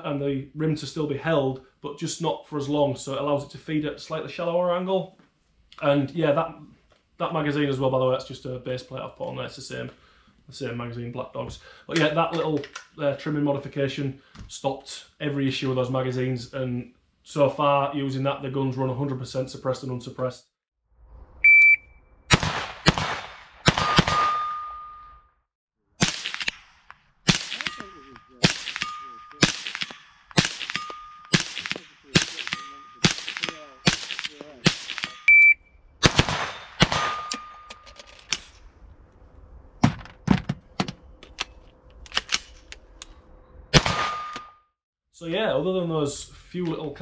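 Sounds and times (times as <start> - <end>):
rifle gunshots: 22.3 - 24.5, 26.0 - 35.3, 36.0 - 37.4, 43.7 - 44.3
metal target ringing ding: 23.8 - 25.2, 27.6 - 29.5, 30.7 - 31.4, 32.4 - 33.8, 37.0 - 37.9.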